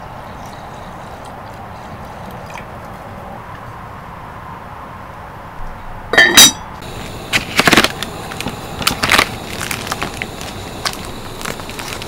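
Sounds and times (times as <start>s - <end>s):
plastic packaging crinkling: 7.3s - 12.0s.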